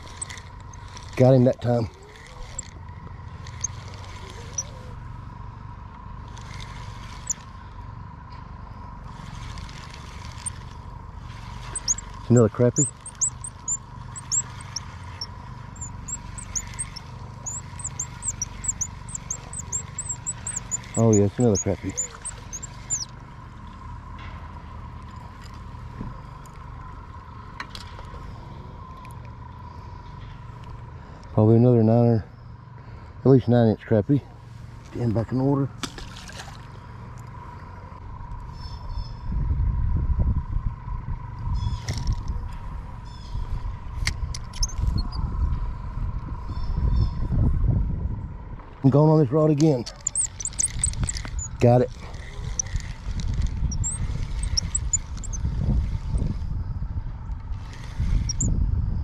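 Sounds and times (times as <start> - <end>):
fishing reel whirring: 0.0 - 4.9, 6.2 - 7.6, 9.1 - 23.1, 49.9 - 56.3, 57.6 - 58.5
low uneven rumble: 0.0 - 33.4
short high chirps: 11.8 - 12.1, 12.7 - 23.1, 49.9 - 51.6, 53.7 - 55.4, 58.3 - 58.5.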